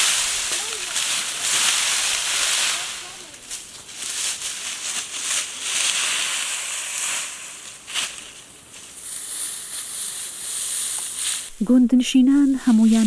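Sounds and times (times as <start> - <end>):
dry straw rustling and crunching: 0.0 - 13.0
steady high hiss: 0.0 - 13.0.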